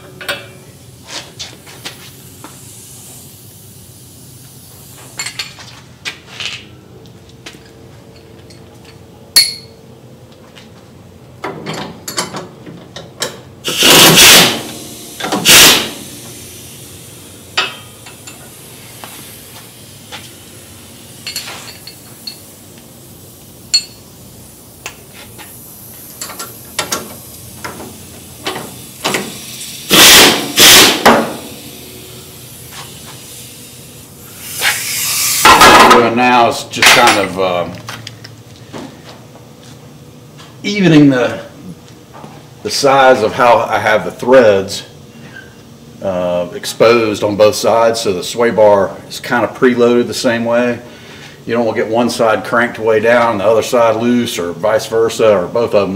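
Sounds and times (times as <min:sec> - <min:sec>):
wrench and ratchet clinks: 0:09.4 - 0:09.7, 0:21.2 - 0:22.5, 0:23.7 - 0:24.0
power tool bursts: 0:13.6 - 0:16.7, 0:28.6 - 0:31.9, 0:34.3 - 0:36.0.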